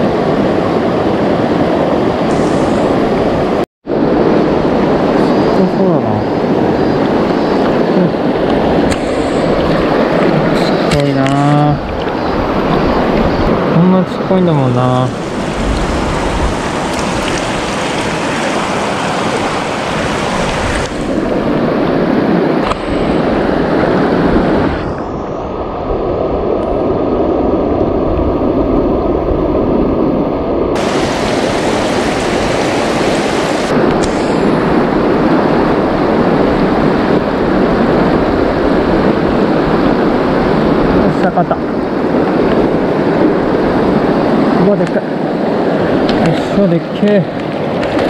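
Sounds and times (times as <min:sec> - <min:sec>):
river rapids rushing over rocks: 0:15.2 - 0:21.2, 0:30.8 - 0:33.8.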